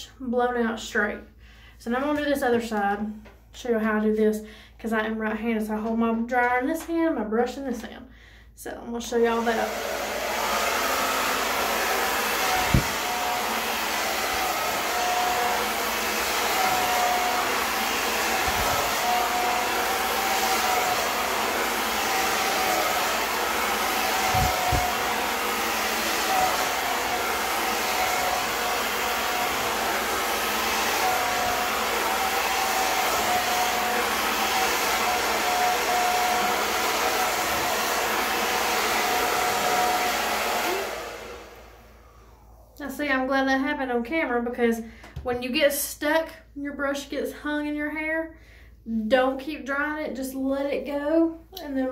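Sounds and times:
hair dryer running: 9.1 - 42.8.

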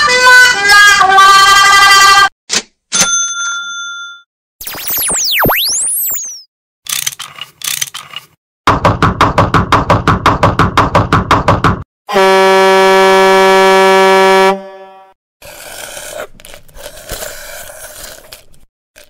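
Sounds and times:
truck air horn blast: 12.1 - 15.2.

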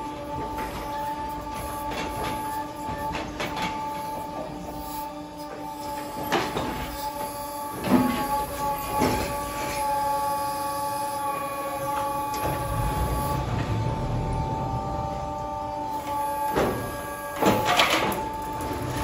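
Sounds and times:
hay crane mechanical whine: 0.0 - 19.0
low rumble: 12.3 - 16.1.

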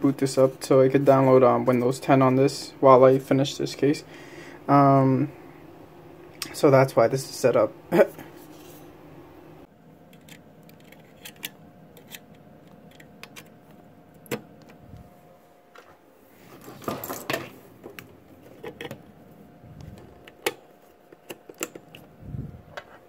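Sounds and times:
cables and connectors clicking: 10.1 - 14.8, 19.8 - 22.1.

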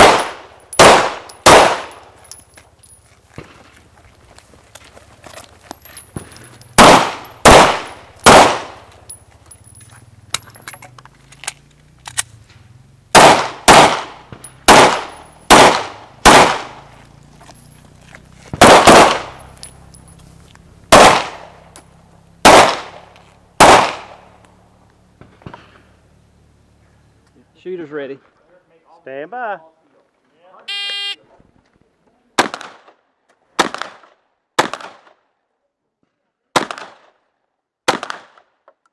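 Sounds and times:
pistol shots echoing: 0.0 - 2.2, 6.7 - 8.9, 13.1 - 16.9, 18.6 - 19.6, 20.9 - 21.6, 22.4 - 24.4, 37.9 - 38.4.

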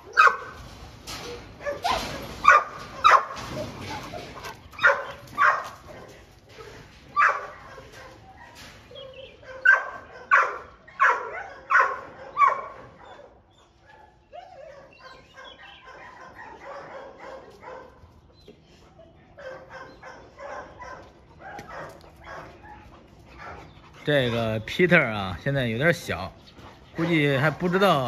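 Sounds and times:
large dog barking: 0.0 - 0.6, 1.4 - 6.3, 7.1 - 18.1, 19.3 - 24.4.

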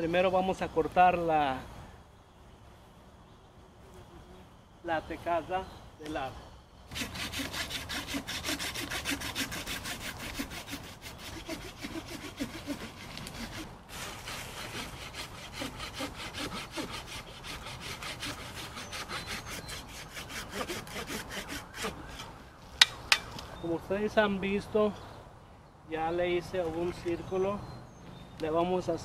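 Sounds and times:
hand saw cutting bark: 6.9 - 23.3.

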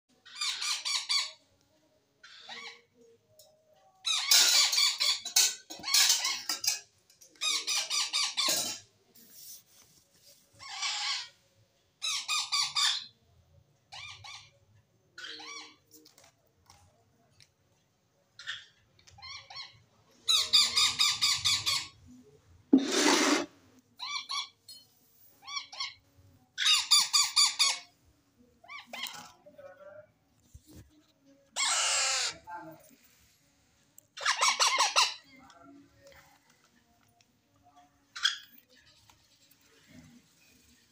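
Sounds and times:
parrot chicks chirping: 13.9 - 14.5, 18.4 - 22.0, 31.6 - 32.4, 34.2 - 35.3
harsh parrot call: 31.6 - 32.4.

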